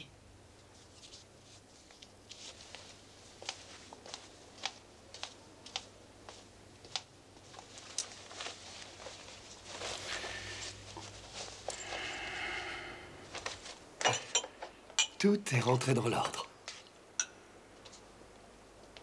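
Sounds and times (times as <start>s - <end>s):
cloth rustling: 0.6s - 12.2s, 13.2s - 13.9s.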